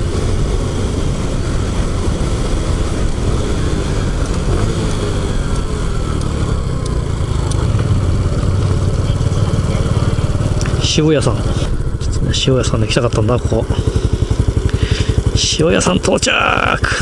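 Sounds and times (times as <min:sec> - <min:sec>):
wind rushing over microphone: 0:00.0 - 0:06.8, 0:07.6 - 0:15.4
small motorcycle engine running: 0:00.0 - 0:17.0.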